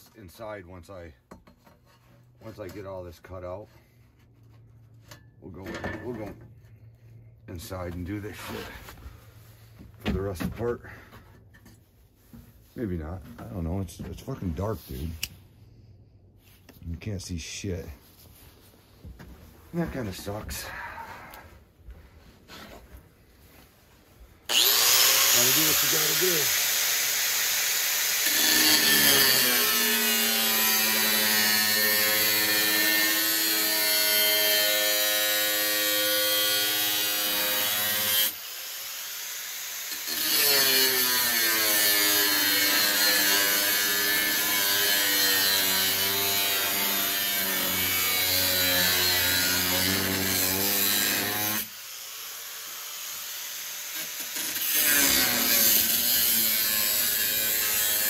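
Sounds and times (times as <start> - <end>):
power saw cutting: 24.5 - 58.0.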